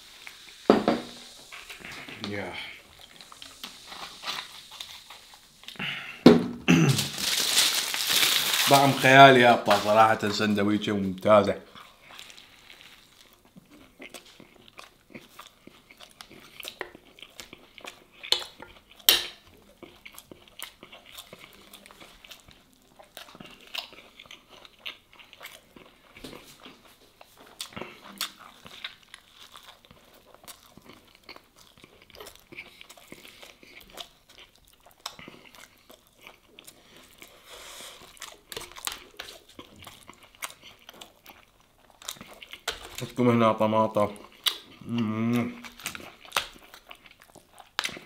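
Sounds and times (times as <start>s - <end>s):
wet chewing: 0.2s - 6.2s, 11.1s - 48.0s
crust crunching: 6.7s - 11.4s.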